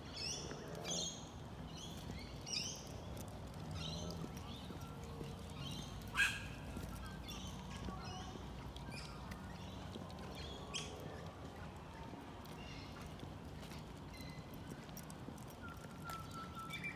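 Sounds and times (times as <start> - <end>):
birds calling: 0.0 - 11.5
soft footsteps on dirt path: 0.0 - 16.9.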